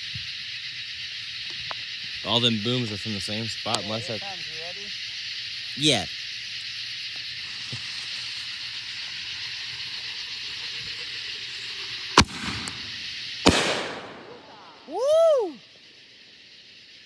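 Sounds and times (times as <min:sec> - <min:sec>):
steady high hiss: 0:00.0 - 0:17.0
firework shell bursting with crackle: 0:07.2 - 0:14.7
firework shell launching bang: 0:12.2 - 0:14.4.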